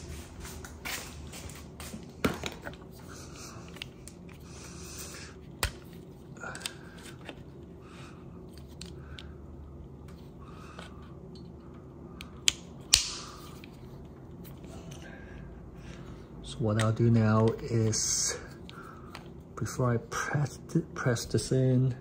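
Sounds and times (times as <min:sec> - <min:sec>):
loud plastic snaps: 0:12.4 - 0:13.4.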